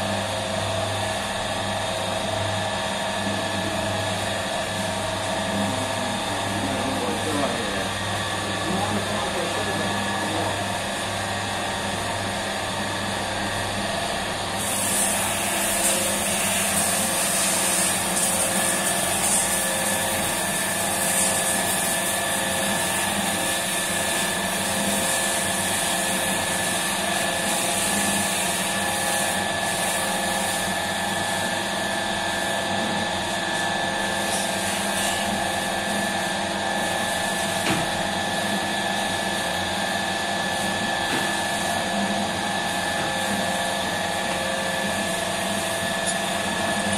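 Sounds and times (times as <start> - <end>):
dough mixer motor humming: 0.0 - 46.9.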